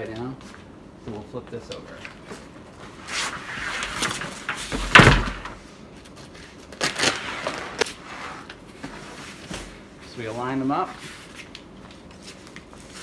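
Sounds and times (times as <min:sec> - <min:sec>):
nylon cover rustling and scraping: 0:06.2 - 0:11.5.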